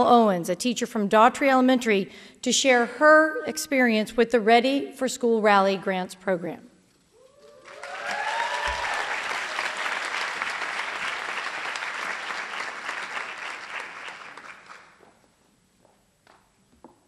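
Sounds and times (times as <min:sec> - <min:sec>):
rising whoop: 0:07.2 - 0:09.7
audience applauding: 0:07.6 - 0:15.0.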